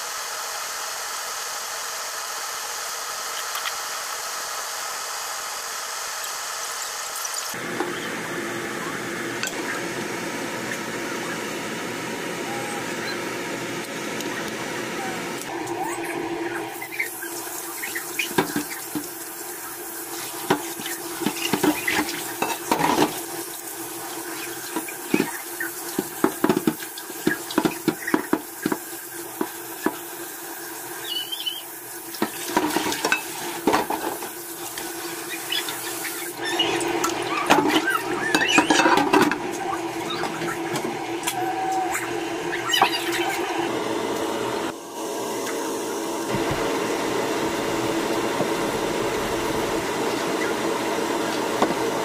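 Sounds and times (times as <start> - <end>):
tap water running into tray: 16.8 - 39.4.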